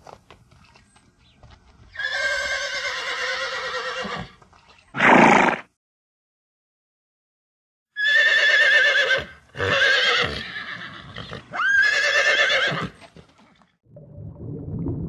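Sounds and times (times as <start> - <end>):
horse whinnying: 1.9 - 4.4, 5.0 - 5.7, 8.0 - 13.0.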